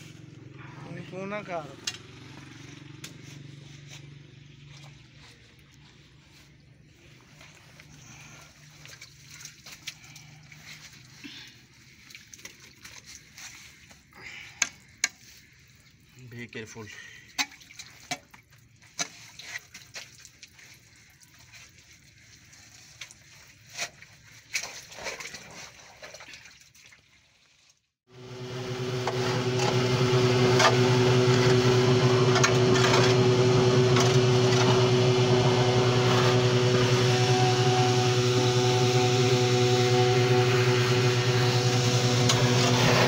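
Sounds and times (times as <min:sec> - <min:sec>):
metal sheet scraping wet sludge: 0:14.9 - 0:27.0
engine humming: 0:28.1 - 0:43.0.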